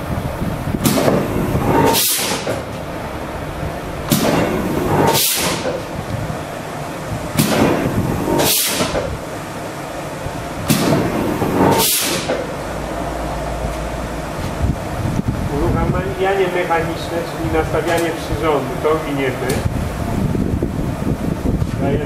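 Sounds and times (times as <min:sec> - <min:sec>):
press flywheel running: 0:00.0 - 0:22.0
pneumatic hiss: 0:00.8 - 0:02.8, 0:04.0 - 0:06.0, 0:07.3 - 0:09.2, 0:10.6 - 0:12.6
sharp clack of press stroke: 0:07.4 - 0:09.1.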